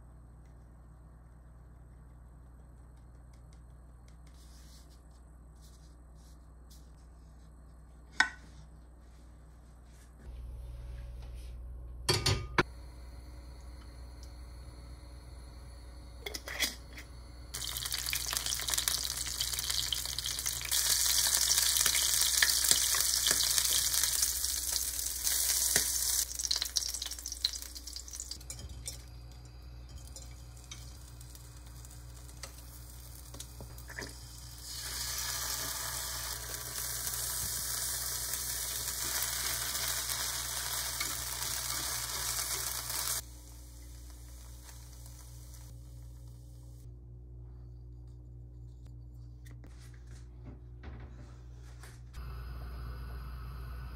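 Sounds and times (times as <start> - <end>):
shrimp sizzling in oil: 17.5 - 28.4, 30.0 - 45.7.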